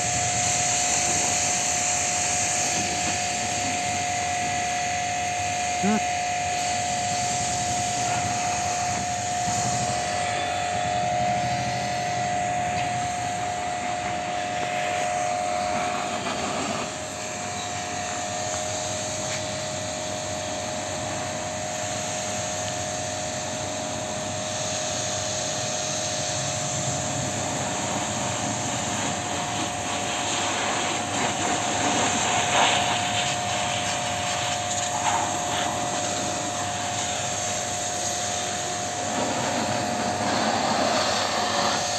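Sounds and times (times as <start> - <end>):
pressure washer motor whine: 0.0 - 41.9
water jet hissing: 0.0 - 41.9.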